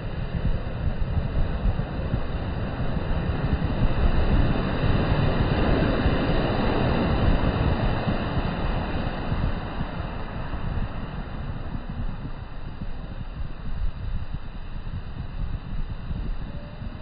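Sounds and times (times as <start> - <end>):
wind rumble on microphone: 0.0 - 17.0
waves breaking on beach: 1.6 - 12.8.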